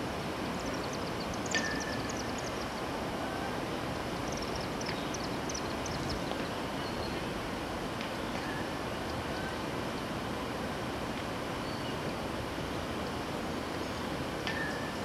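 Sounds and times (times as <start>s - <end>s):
steady rushing outdoor noise: 0.0s - 15.0s
small birds chirping: 0.6s - 2.9s, 4.2s - 7.2s.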